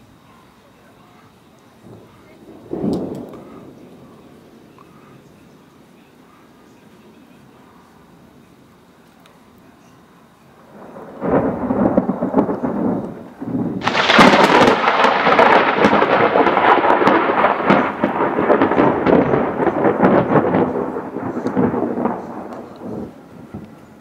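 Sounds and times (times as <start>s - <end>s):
thunder rumble and crack: 1.8s - 5.9s, 10.6s - 24.0s.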